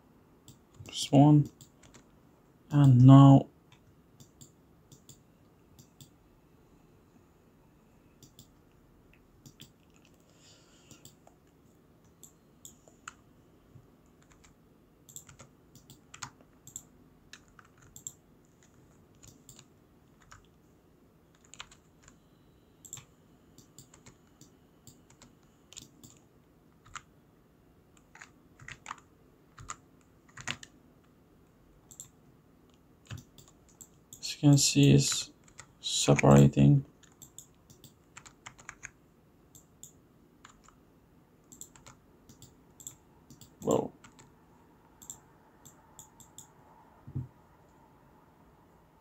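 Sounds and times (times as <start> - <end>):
faint steady hum: 0.0 - 49.0
keyboard keys clicking: 14.2 - 20.5, 21.3 - 22.2, 28.0 - 30.7, 37.0 - 38.9, 39.6 - 40.8, 41.5 - 44.3
mouse buttons clicking: 45.0 - 46.5.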